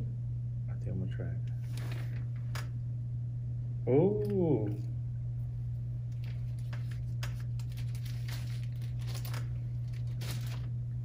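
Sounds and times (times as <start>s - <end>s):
steady low hum: 0.0s - 11.0s
paper crinkling and rustling: 1.6s - 2.7s, 6.1s - 10.8s.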